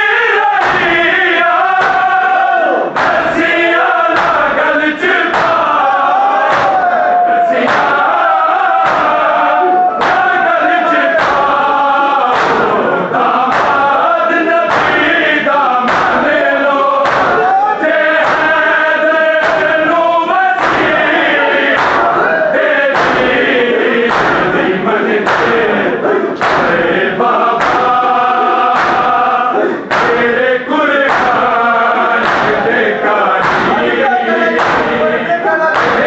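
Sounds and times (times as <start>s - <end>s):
men chanting a lament in unison: 0.0s - 36.0s
chest-beating strokes: 20.6s - 36.0s.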